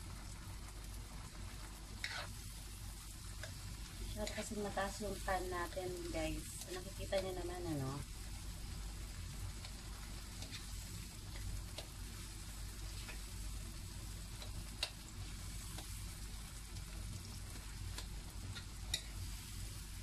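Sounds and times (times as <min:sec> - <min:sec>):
vegetables sizzling in a wok: 0:00.0 - 0:20.0
spoon scraping a pan: 0:02.0 - 0:02.4, 0:04.2 - 0:04.7, 0:10.3 - 0:11.4
spoon clicking against pan: 0:18.0 - 0:19.2.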